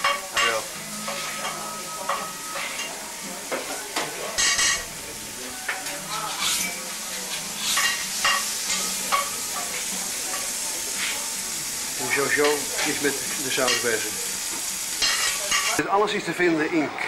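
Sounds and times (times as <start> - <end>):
spatula scraping hot plate: 0.0 - 2.9, 5.8 - 11.4, 14.9 - 15.8
crepe sizzling on griddle: 0.0 - 15.8.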